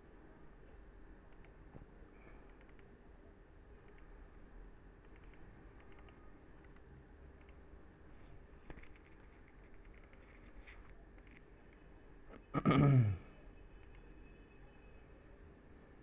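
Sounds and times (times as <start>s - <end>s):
faint steady hum: 0.0s - 16.0s
computer clicks: 1.3s - 1.6s, 2.3s - 3.0s, 3.8s - 4.2s, 5.0s - 7.7s, 8.5s - 11.8s, 13.8s - 14.1s.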